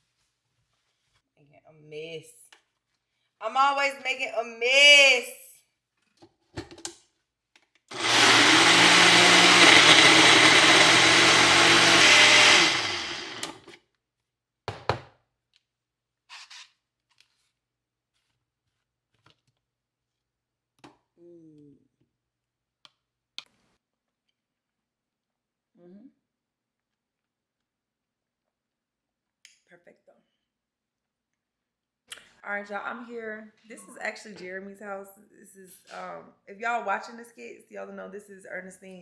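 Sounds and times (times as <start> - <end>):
blender running: 7.9 - 13.8.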